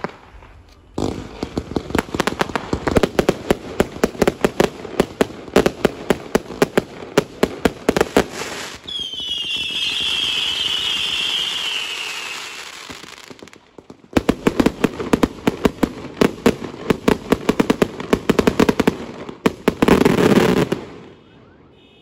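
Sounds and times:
firework crackling: 0.0s - 21.0s
firework bangs: 0.0s - 21.2s
firework whistling hiss: 8.3s - 13.3s.

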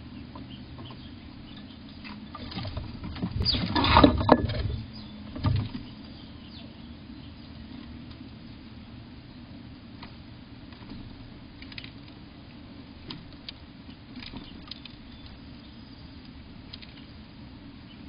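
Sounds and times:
low background hum: 0.0s - 18.0s
squirrel clicking and scratching plastic: 11.6s - 12.2s, 13.0s - 15.4s, 16.2s - 17.1s.

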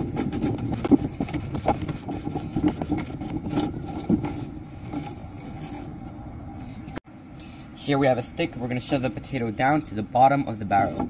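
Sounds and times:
potato scraping and crunching: 0.0s - 6.0s.

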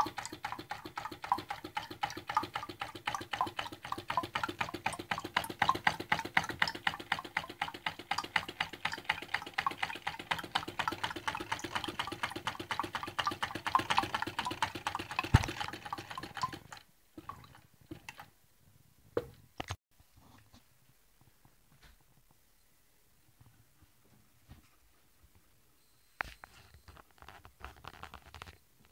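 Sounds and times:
small engine rapid clicking: 0.0s - 18.3s.

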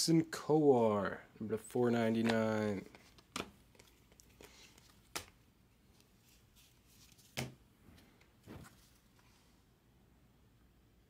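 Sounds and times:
cards tapping down: 2.1s - 5.4s
cards sliding: 2.1s - 7.6s.

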